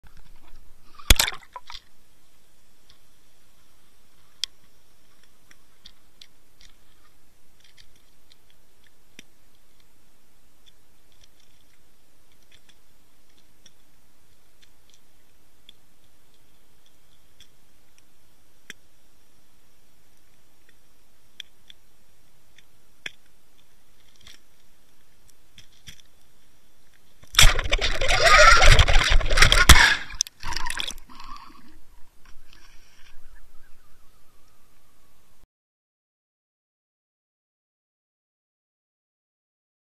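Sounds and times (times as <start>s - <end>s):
underwater water noise: 0.0s - 35.4s
faint clicks and ticks: 4.2s - 19.0s, 20.0s - 27.4s
churning sloshing water: 27.4s - 31.8s.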